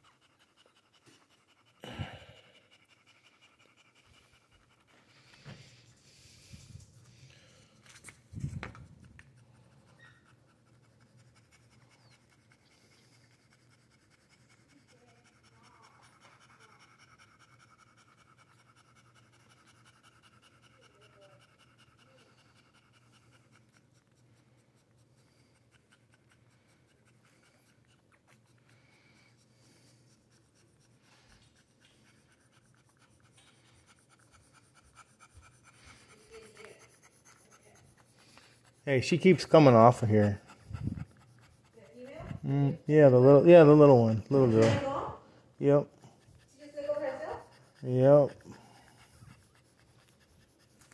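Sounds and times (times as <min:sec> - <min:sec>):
soft rubbing and rustling: 0:04.1 - 0:12.6.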